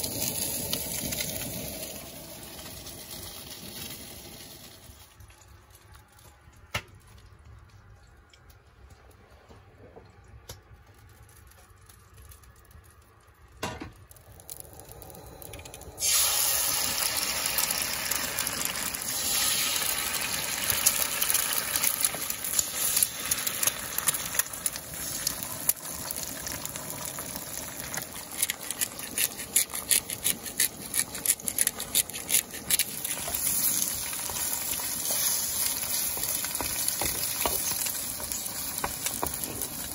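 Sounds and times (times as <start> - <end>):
eggs sizzling in skillet: 0.0 - 5.6, 13.9 - 39.9.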